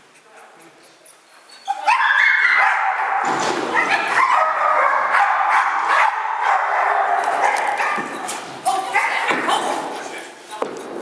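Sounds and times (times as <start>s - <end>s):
dog yipping and whining: 1.0s - 2.8s.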